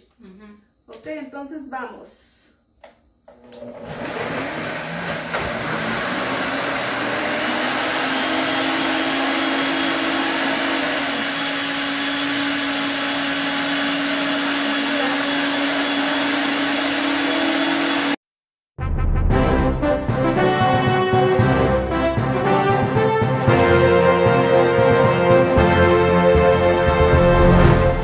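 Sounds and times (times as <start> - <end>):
blenders whirring: 3.3 - 18.2.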